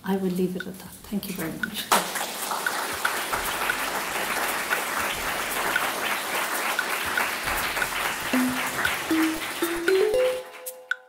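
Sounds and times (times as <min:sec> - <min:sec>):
audience applauding: 0:01.9 - 0:10.9
short rising music: 0:08.3 - 0:10.9.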